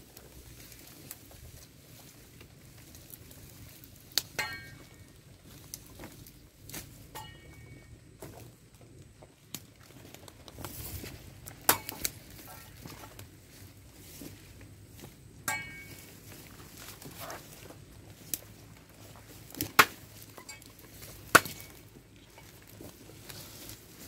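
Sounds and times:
rustling in grass: 0.0s - 8.6s, 9.4s - 24.0s
machete chopping stems: 11.6s - 12.7s, 19.6s - 20.1s, 21.2s - 21.8s.

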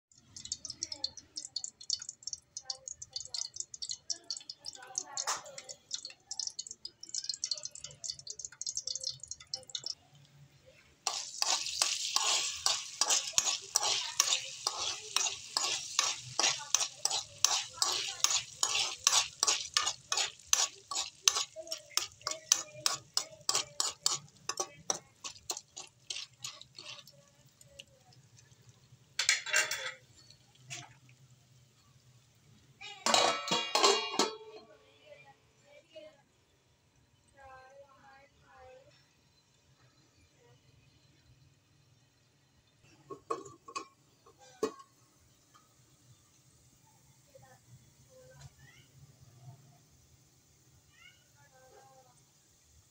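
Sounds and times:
metal spoon stirring popcorn kernels: 0.2s - 10.0s, 11.1s - 28.3s.

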